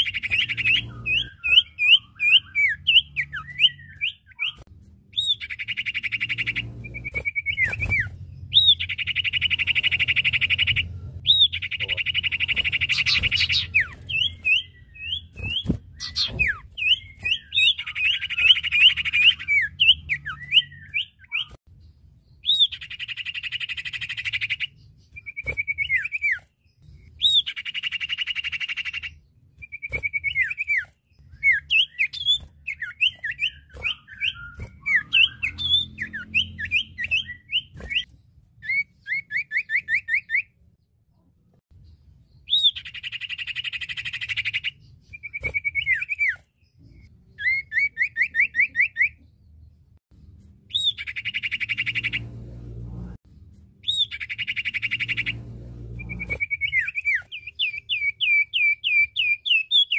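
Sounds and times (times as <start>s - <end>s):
bird chirps dropping in pitch: 0.0s - 21.6s, 27.1s - 40.5s
buzzy bird trills: 0.0s - 21.6s, 53.8s - 59.6s.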